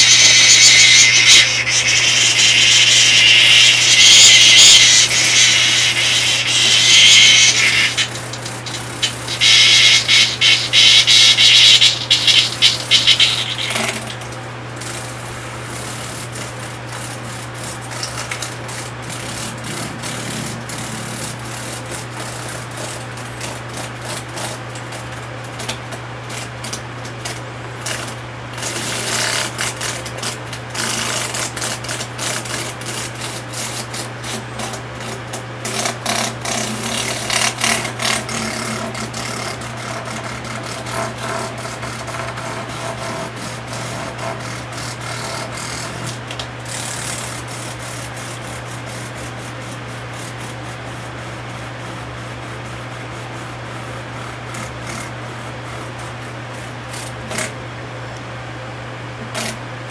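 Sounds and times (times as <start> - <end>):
cicada wings fluttering: 0.0 - 14.1
cicada rattling buzzes: 0.0 - 14.2
steady low hum: 0.0 - 14.6, 15.7 - 22.7.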